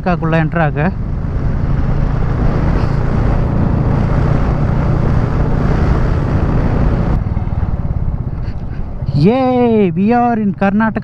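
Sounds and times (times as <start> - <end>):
wind rushing over microphone: 0.0 - 9.7
motorcycle engine running: 0.4 - 9.1.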